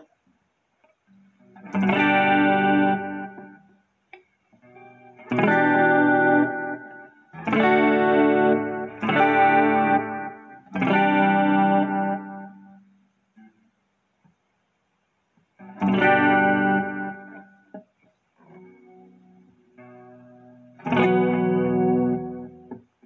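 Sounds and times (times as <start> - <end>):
electric guitar chords ringing: 1.4 - 3.7, 4.6 - 12.9, 15.6 - 17.8, 18.5 - 22.9.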